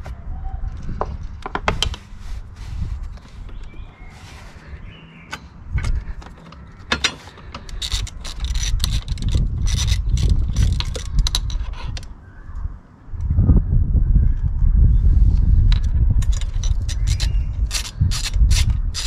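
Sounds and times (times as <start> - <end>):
ratchet clicking: 7.5 - 11.6.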